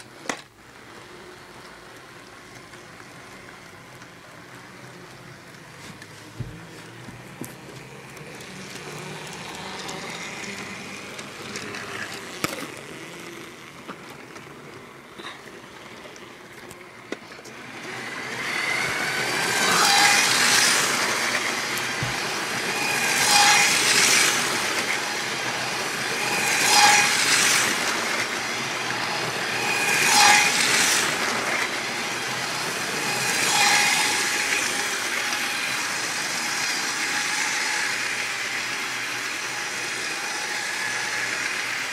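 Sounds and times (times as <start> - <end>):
toy train motor whine: 0.0 - 41.9
toy train wheel clatter: 8.0 - 14.8, 18.7 - 41.9.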